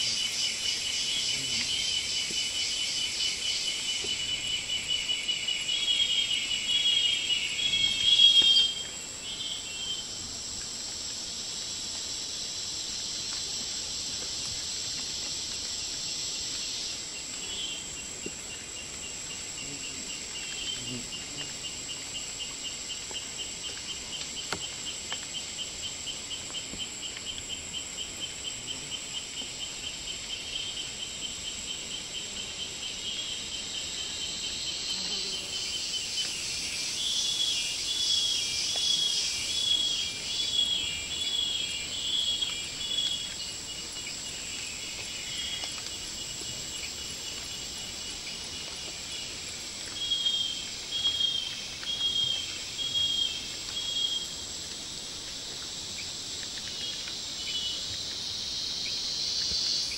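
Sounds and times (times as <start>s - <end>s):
high-pitched insect buzz: 0.0s - 10.2s, 30.3s - 59.9s
pulsed insect chirping: 0.0s - 10.2s, 10.8s - 59.9s
dense insect hiss: 0.0s - 59.9s.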